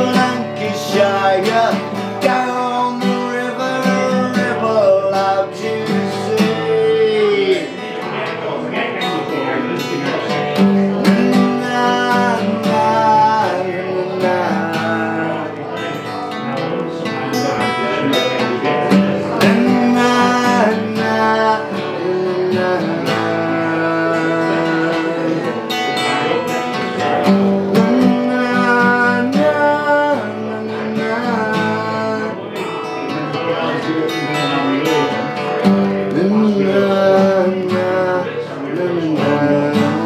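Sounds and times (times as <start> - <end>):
acoustic guitar strumming: 0.0 - 40.0.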